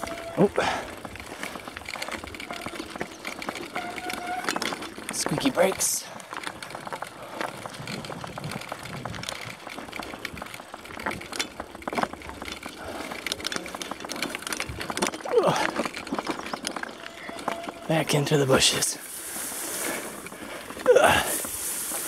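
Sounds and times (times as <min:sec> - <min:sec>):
gliding squeal: 0:00.0 - 0:00.5, 0:03.7 - 0:04.7, 0:16.8 - 0:18.1
bicycle frame rattling: 0:00.0 - 0:22.0.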